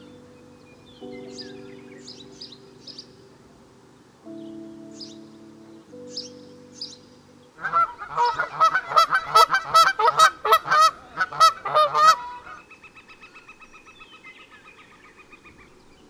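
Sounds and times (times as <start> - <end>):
geese honking: 7.6 - 12.6.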